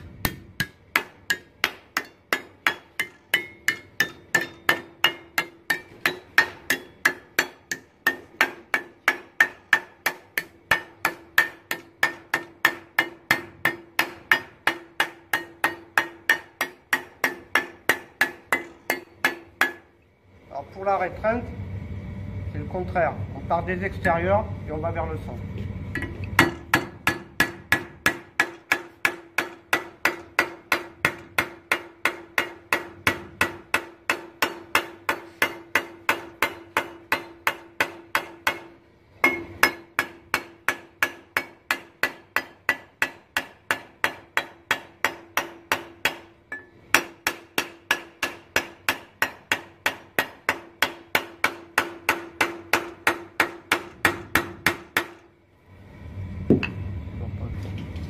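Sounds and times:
hammer strikes on sheet metal: 0.2s - 19.8s, 26.0s - 55.2s
metallic ring: 46.5s - 46.8s.

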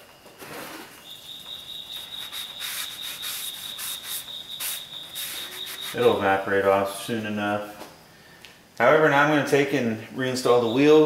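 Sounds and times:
rag rubbing metal rotor: 1.9s - 6.4s
aerosol spray hiss: 2.1s - 6.1s.

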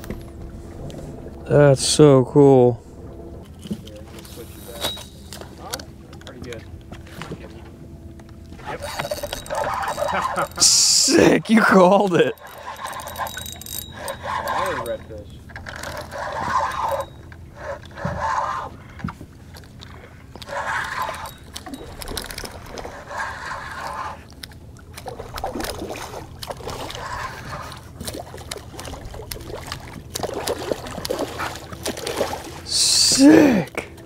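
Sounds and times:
water sloshing against boat hull: 0.0s - 34.0s
spinning reel cranking: 8.7s - 11.4s, 12.2s - 15.0s, 15.6s - 18.7s, 20.4s - 24.2s.

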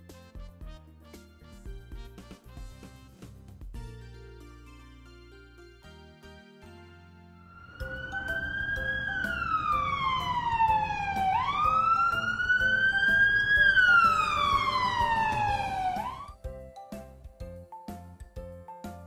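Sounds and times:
light background music: 0.0s - 19.0s
siren wailing: 7.5s - 16.4s.

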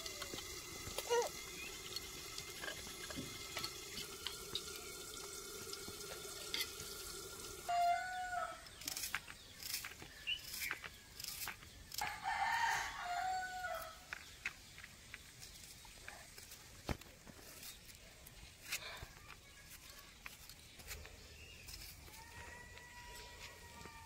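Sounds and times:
snails clicking in steel bowls: 0.0s - 6.9s
rooster crowing: 7.7s - 8.7s, 12.0s - 14.0s, 22.2s - 24.0s.

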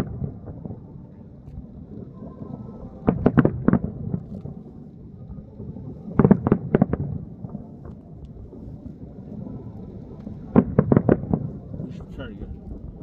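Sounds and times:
steady low rumble: 0.0s - 13.0s
distant explosive bangs: 2.9s - 4.2s, 6.1s - 7.6s, 10.4s - 13.0s.

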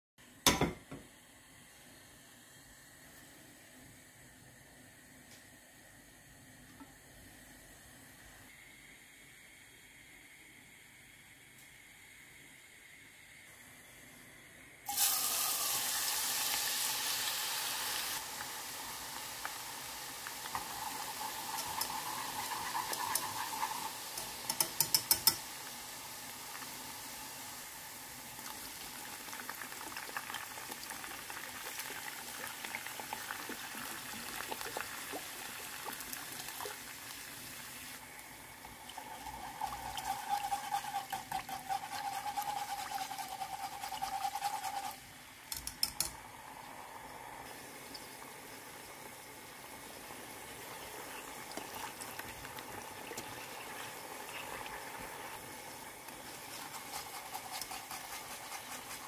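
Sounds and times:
aromatics sizzling in hot oil: 14.8s - 59.0s
sauce bubbling: 18.2s - 45.0s, 46.2s - 59.0s
whisk stirring sauce: 39.6s - 45.0s, 56.1s - 59.0s.

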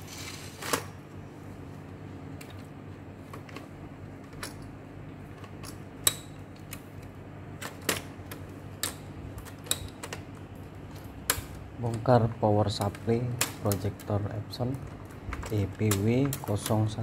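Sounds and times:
low steady hum: 0.0s - 17.0s
clicks of wire connectors unplugging: 12.7s - 14.2s.

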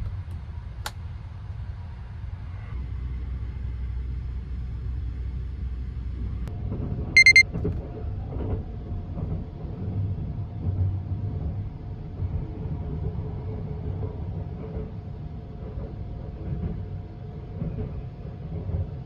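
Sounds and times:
train running rumble: 0.0s - 19.0s
high-pitched electronic beeps: 7.2s - 7.4s.

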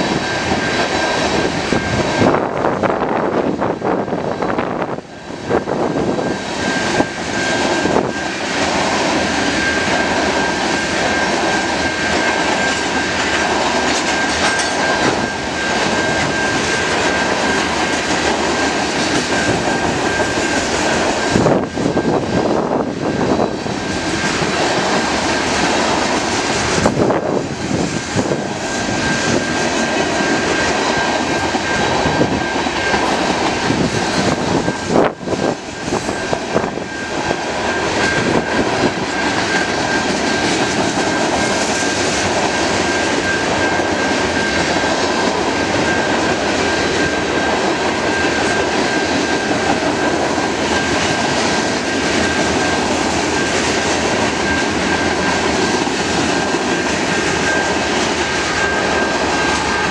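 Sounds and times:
train wheels rumbling on rails: 0.0s - 59.9s
thin high tone: 28.0s - 59.9s.

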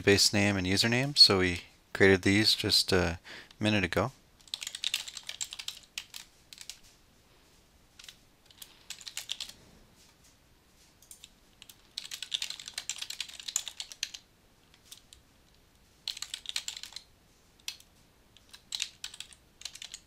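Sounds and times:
typing on computer keyboard: 4.4s - 6.8s, 8.0s - 9.6s, 11.0s - 15.2s, 16.0s - 20.0s.

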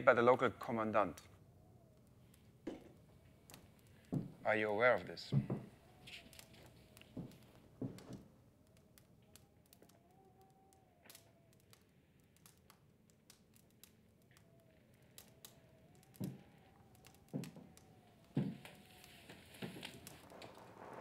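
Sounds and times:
heavy thumps: 4.1s - 4.4s
soft hiss: 11.2s - 21.0s.

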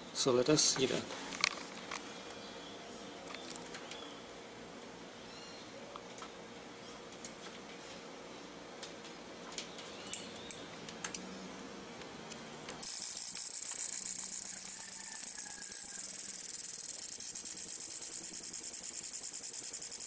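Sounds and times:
high-pitched insect trill: 12.8s - 20.0s
sharp clicks: 12.8s - 20.0s.

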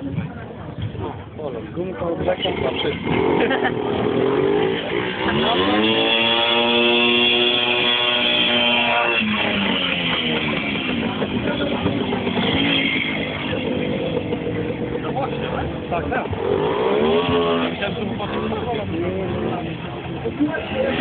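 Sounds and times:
two-stroke motorcycle engine revving: 2.1s - 21.0s.

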